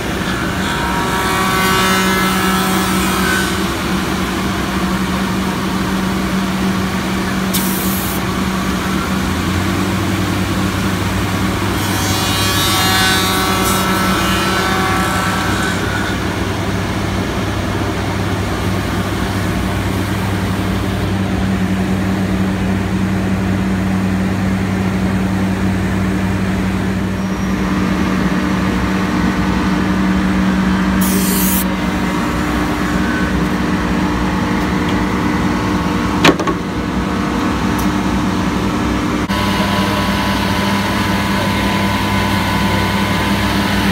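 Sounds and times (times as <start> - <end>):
woodworking machine cutting: 0.0 - 21.4, 28.7 - 36.7, 39.2 - 43.9.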